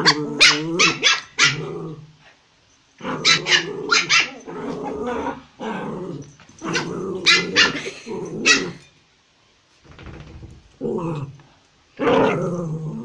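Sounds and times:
puppies barking sharply: 0.0s - 1.6s, 3.2s - 4.4s, 6.8s - 8.9s
puppies growling: 0.0s - 2.1s, 3.0s - 8.9s.

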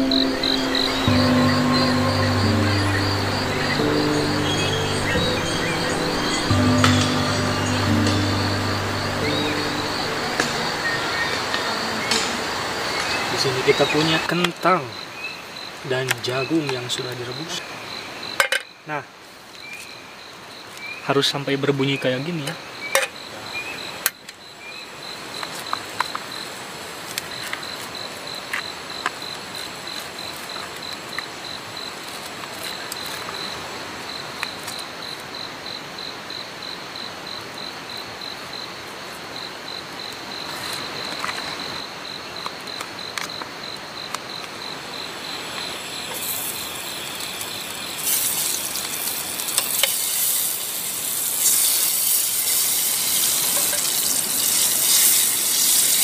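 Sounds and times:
steady hiss: 0.0s - 15.1s, 43.8s - 56.0s
cricket chirping: 0.0s - 56.0s
broad hiss: 45.1s - 56.0s.

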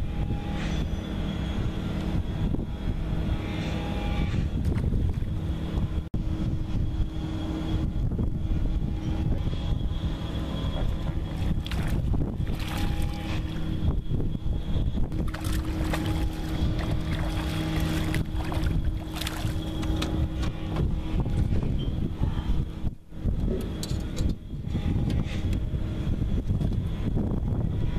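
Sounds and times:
wind on microphone: 0.0s - 27.9s
boat motor running: 8.2s - 24.5s
water rushing and splashing: 11.3s - 13.8s, 15.2s - 19.9s.

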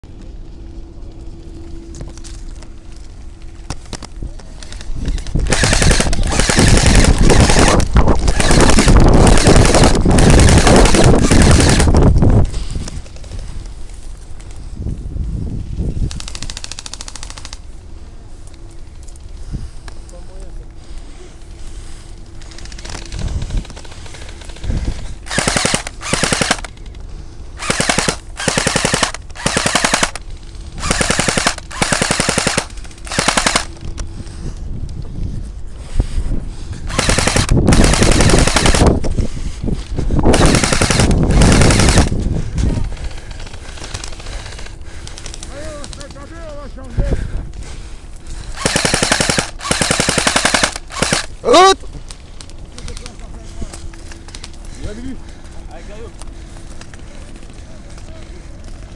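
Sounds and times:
airsoft rifle full-auto bursts: 5.1s - 12.1s, 16.2s - 17.6s, 22.4s - 26.9s, 27.6s - 33.8s, 36.9s - 39.1s, 40.3s - 42.2s, 42.9s - 46.1s, 48.4s - 51.8s.

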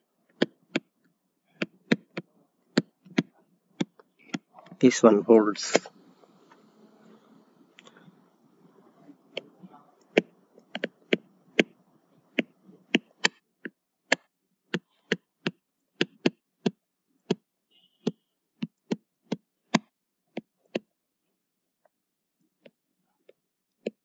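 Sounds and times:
stylus tapping on tablet screen: 0.3s - 1.0s, 1.6s - 4.8s, 9.3s - 20.9s.

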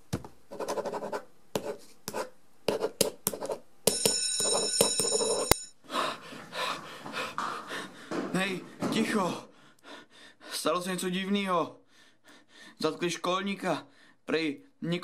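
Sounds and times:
pen scratching on paper: 0.5s - 3.6s
bell click: 3.9s - 5.7s
electric school bell ringing: 3.9s - 5.8s
panting breaths: 5.9s - 10.7s, 11.9s - 12.8s.

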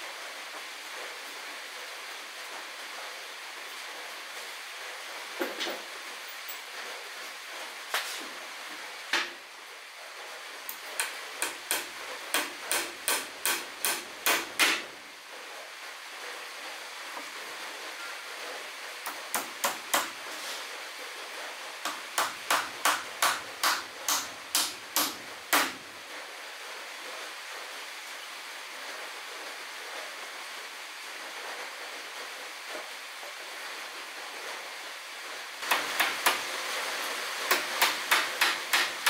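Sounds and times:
steady hiss: 0.0s - 39.0s
hammer striking nails into wood: 11.0s - 14.9s, 19.1s - 20.2s, 21.9s - 25.8s, 35.6s - 36.4s, 37.5s - 39.0s.

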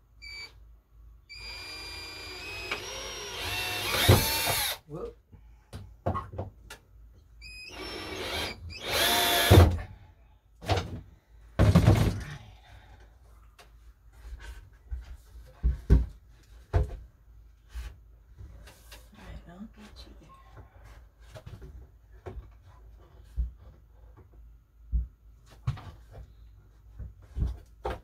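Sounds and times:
power drill driving screws: 1.3s - 4.8s, 7.6s - 9.8s.

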